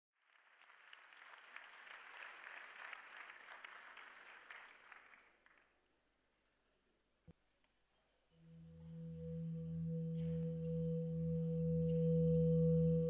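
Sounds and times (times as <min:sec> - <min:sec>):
faint audience applause: 0:00.2 - 0:05.9.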